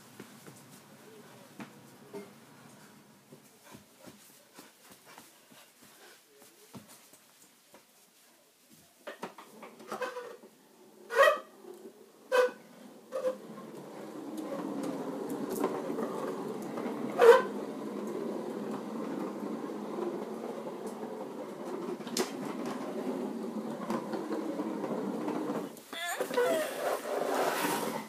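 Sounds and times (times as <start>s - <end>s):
plastic wheels rolling on concrete: 9.0s - 28.0s.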